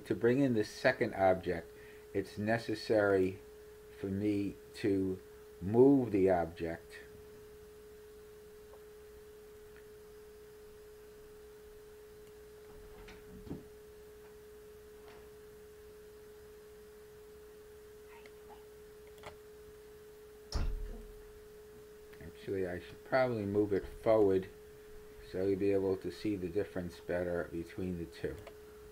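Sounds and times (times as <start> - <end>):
faint electrical whine: 0.0 - 28.9
short thump: 20.5 - 21.1.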